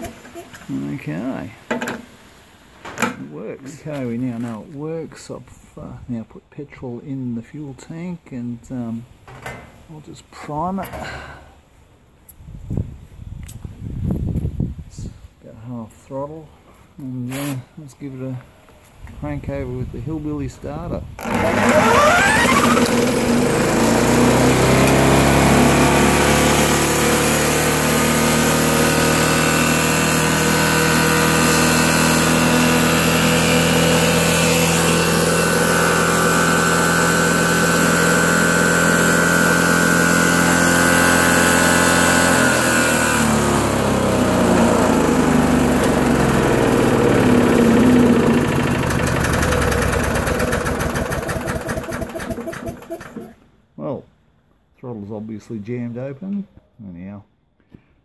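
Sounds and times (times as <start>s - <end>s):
electric drill spinning: 21.2s - 53.4s
lawnmower engine running fast: 21.2s - 53.4s.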